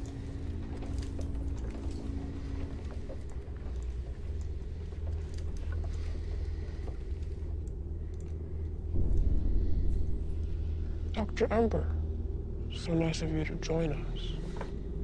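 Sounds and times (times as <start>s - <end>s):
faint scattered clicks: 0.0s - 9.3s
low steady rumble: 0.0s - 15.0s.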